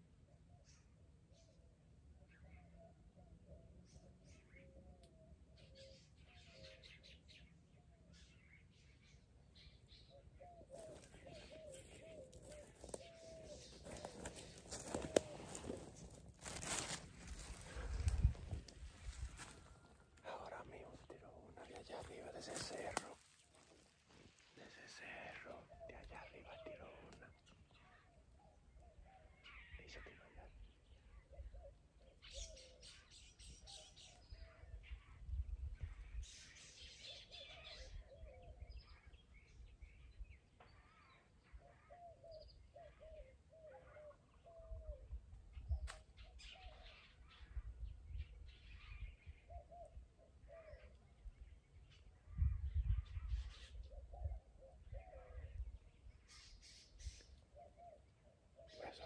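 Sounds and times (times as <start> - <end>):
birds calling low wavering notes: 0.4 - 59.0
rustling through dry brush: 10.6 - 20.3, 21.6 - 25.1.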